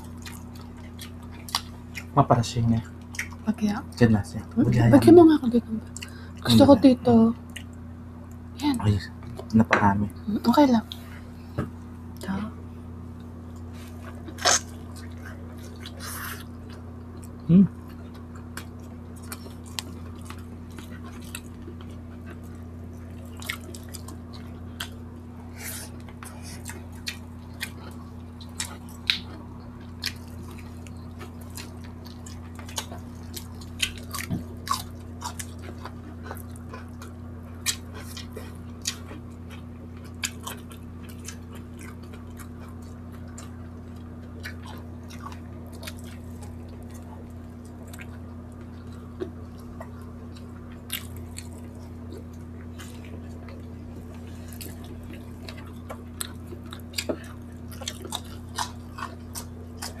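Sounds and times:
chewing and mouth noises: 0.0s - 3.5s, 7.4s - 9.6s, 13.1s - 60.0s
steady low hum: 0.0s - 60.0s.

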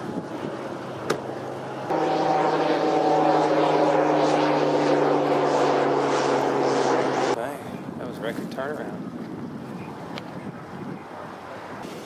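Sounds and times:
engine drone: 0.1s - 7.4s.

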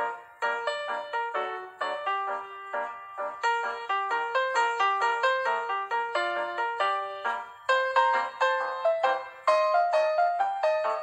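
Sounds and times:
bright background melody: 0.0s - 11.0s.

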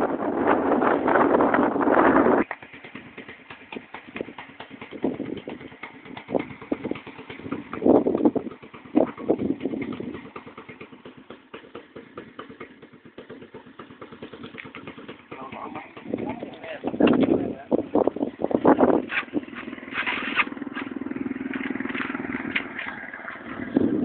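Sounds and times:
wind gusts on microphone: 0.0s - 2.5s, 4.9s - 10.2s, 15.6s - 24.0s
footsteps on gravelly sand: 19.1s - 23.7s.

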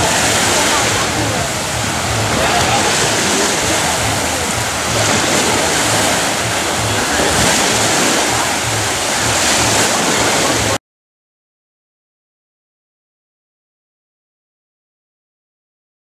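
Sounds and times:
waves breaking on a beach: 0.0s - 10.8s.

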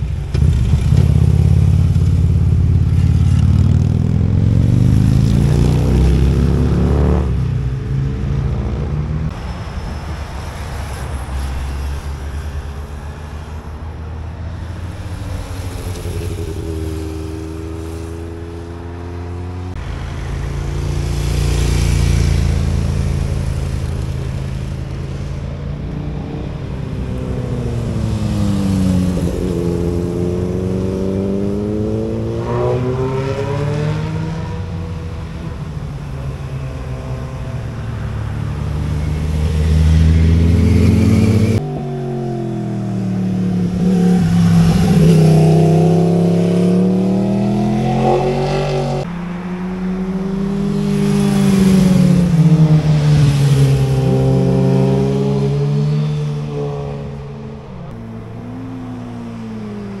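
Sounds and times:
motorcycle engines revving: 0.0s - 60.0s.

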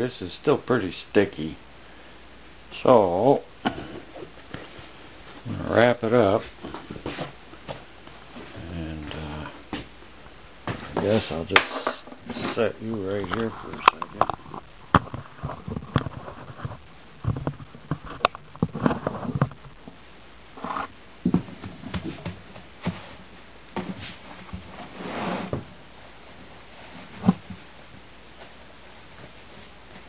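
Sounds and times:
cloth rustling and rubbing: 21.7s - 30.0s.

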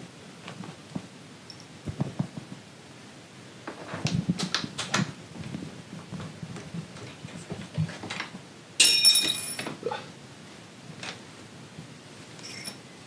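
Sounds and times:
metal tool clinking: 8.8s - 9.7s, 12.4s - 12.8s
rustling of chair parts: 12.2s - 12.9s.

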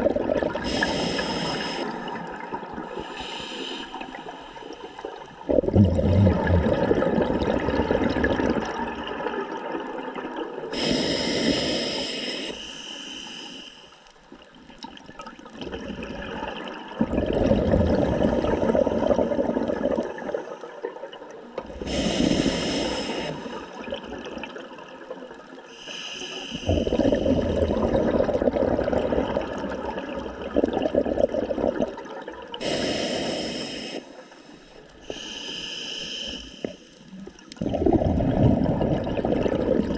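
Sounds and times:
exhaled bubbles gushing underwater: 0.0s - 10.8s, 14.6s - 25.6s, 26.6s - 32.6s, 37.2s - 39.9s
regulator inhale hiss: 0.6s - 5.4s, 10.7s - 14.1s, 21.7s - 23.8s, 25.7s - 27.2s, 32.6s - 37.1s.

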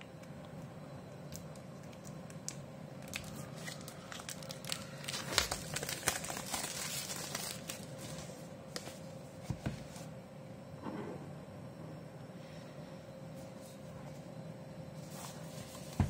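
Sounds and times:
plastic film crinkling: 1.3s - 9.0s.

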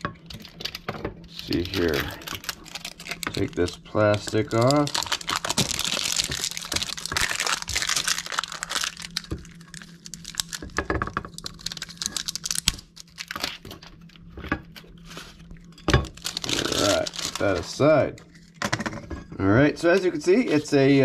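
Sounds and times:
plastic film crinkling: 0.2s - 17.8s.

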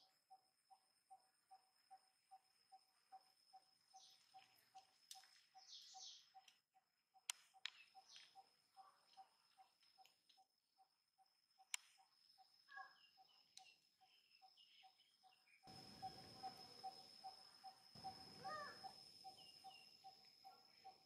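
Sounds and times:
insects buzzing: 0.0s - 6.6s, 7.2s - 21.0s
short chirps and calls: 3.2s - 6.5s, 12.0s - 21.0s
pulsing insect note: 15.6s - 21.0s.

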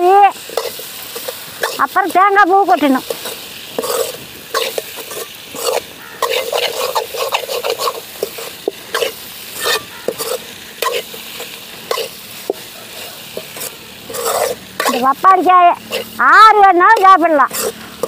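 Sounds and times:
food sizzling: 0.0s - 18.0s
metal spoon scraping metal pot: 3.0s - 11.2s, 12.9s - 15.1s, 15.8s - 16.2s, 17.5s - 18.0s.

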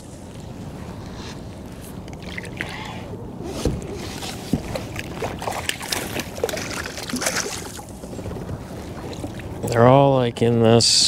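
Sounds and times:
fish splashing in water: 2.1s - 3.1s, 3.8s - 9.6s.

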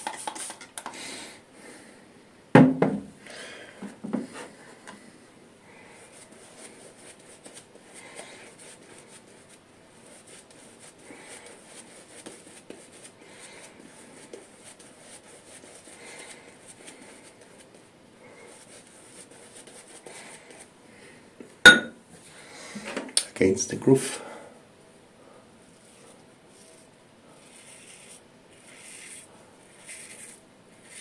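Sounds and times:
shaving brush strokes: 6.0s - 20.7s, 25.6s - 31.0s.

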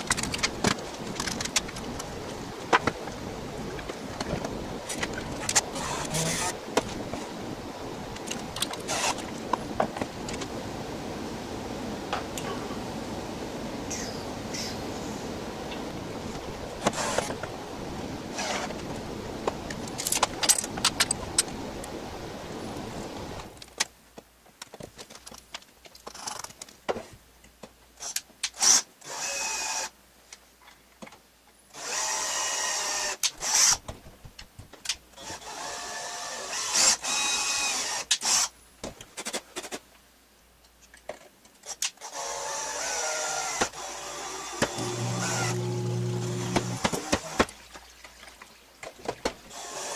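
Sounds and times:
cordless drill bursts: 5.8s - 6.6s, 42.0s - 47.4s.

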